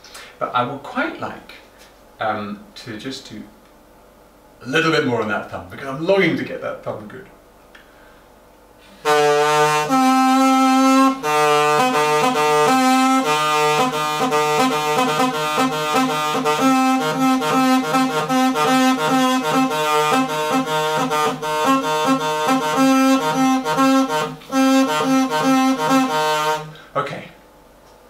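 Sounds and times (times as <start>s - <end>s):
double-reed pipe playing: 9.0s - 26.9s.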